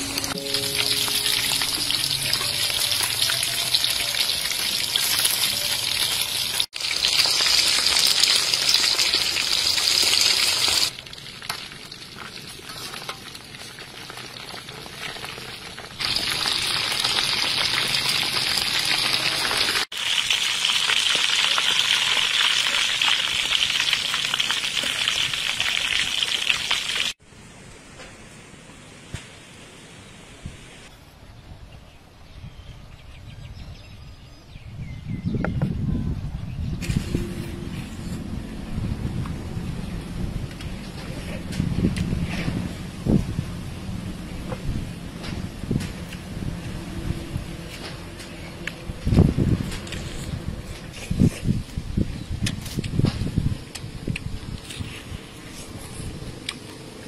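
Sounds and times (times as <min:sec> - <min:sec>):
chicken deep-frying in oil: 0:00.0 - 0:27.2.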